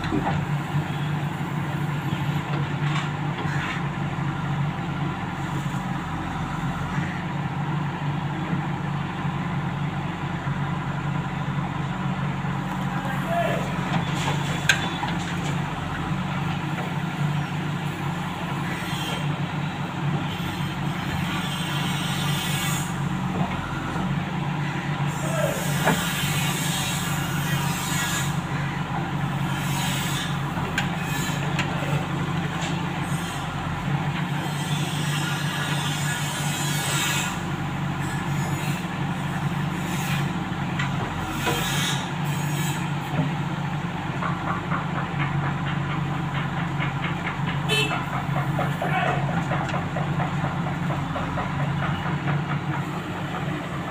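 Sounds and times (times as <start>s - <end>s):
diesel engine running under load: 0.0s - 53.9s
backhoe digging soil: 12.6s - 24.2s, 24.8s - 53.9s.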